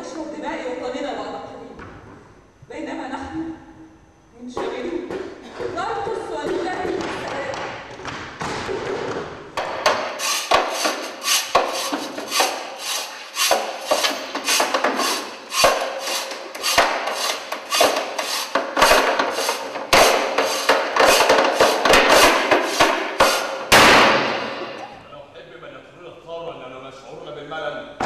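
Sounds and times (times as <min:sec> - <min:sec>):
wooden blocks knocking: 0:09.6 - 0:24.4
wood scraping: 0:09.6 - 0:24.9.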